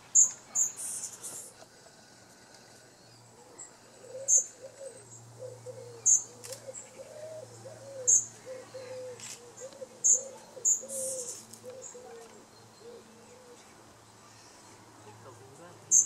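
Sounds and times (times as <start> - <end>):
songbirds chirping: 0.0 - 16.0
low wavering cooing: 1.7 - 13.7.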